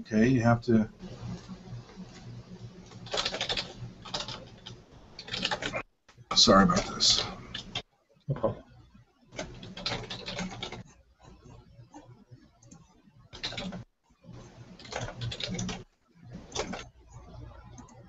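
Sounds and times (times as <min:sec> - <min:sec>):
typing on computer keyboard: 0:03.0 - 0:05.8, 0:09.4 - 0:10.8, 0:12.6 - 0:13.8, 0:14.7 - 0:15.8, 0:16.4 - 0:16.9.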